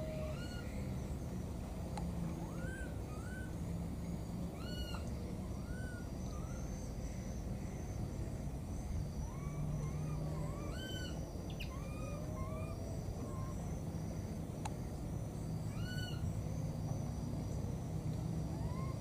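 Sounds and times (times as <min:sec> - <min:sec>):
high insect drone: 0:00.0 - 0:19.0
baby monkey coo calls: 0:02.4 - 0:03.6, 0:04.6 - 0:07.7, 0:09.2 - 0:13.8, 0:15.7 - 0:16.3, 0:18.5 - 0:19.0.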